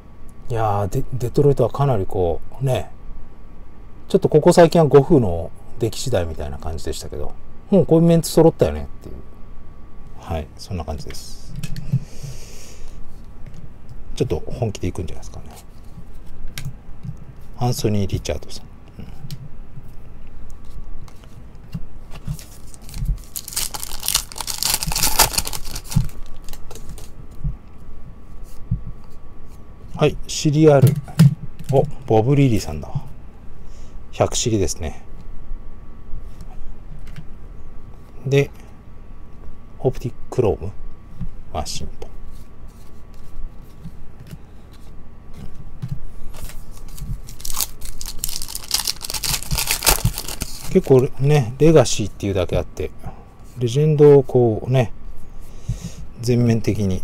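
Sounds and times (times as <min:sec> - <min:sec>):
cards being handled: 0:20.5 - 0:27.2, 0:46.2 - 0:51.1
plastic wrapper tearing: 0:22.4 - 0:27.1, 0:46.4 - 0:51.0.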